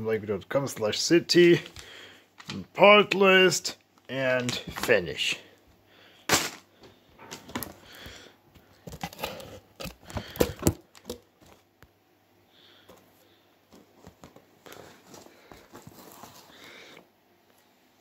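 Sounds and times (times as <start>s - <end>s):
cardboard and plastic rustling: 7.4s - 11.7s, 13.7s - 17.0s.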